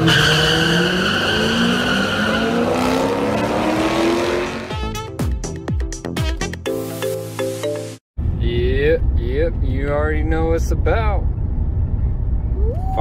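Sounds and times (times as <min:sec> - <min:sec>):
tire squeal: 0:00.0 - 0:03.6
drag cars accelerating: 0:00.0 - 0:04.7.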